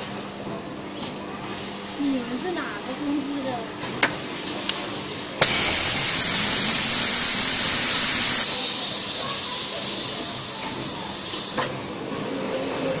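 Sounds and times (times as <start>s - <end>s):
high whine: 5.4s - 8.7s
welding machine hiss: 5.4s - 11.6s.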